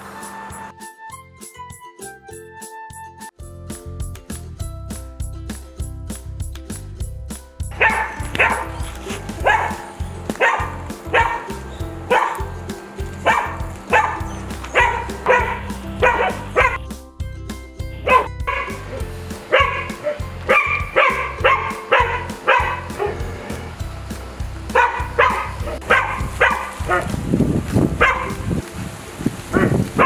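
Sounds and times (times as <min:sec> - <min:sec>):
background music: 0:00.0 - 0:30.0
dog barking: 0:07.8 - 0:12.5, 0:13.2 - 0:16.8, 0:18.0 - 0:23.3, 0:24.7 - 0:27.2, 0:28.0 - 0:28.5, 0:29.5 - 0:30.0.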